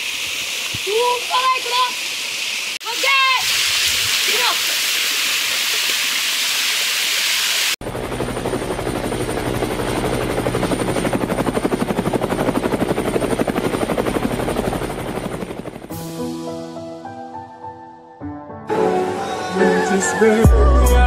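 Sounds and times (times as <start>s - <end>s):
small waterfall rushing: 0.0s - 7.8s.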